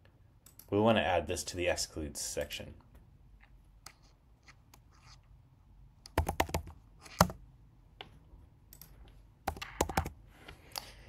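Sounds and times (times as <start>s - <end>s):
computer keyboard clicks and taps: 6.1s - 7.4s, 8.0s - 10.9s.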